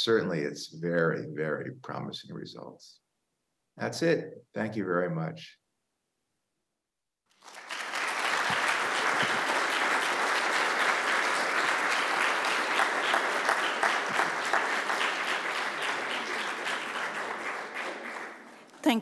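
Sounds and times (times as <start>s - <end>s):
audience applauding: 7.3s - 19.0s.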